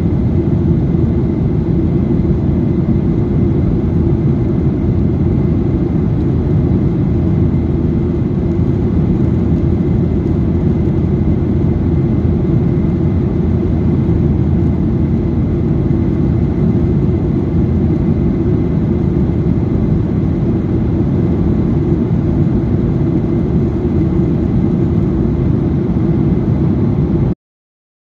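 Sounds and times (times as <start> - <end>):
airliner cabin engine rumble: 0.0 - 27.4.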